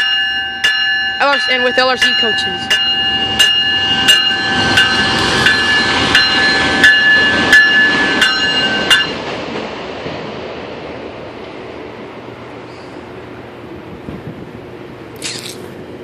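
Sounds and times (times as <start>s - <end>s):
train bell ringing: 0.0s - 9.3s
rumble of passing trains: 0.0s - 16.0s.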